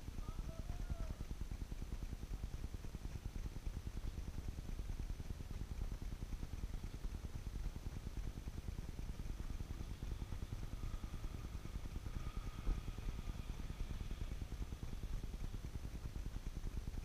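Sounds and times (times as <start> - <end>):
low outdoor rumble: 0.0 - 17.0
faint whine: 3.7 - 17.0.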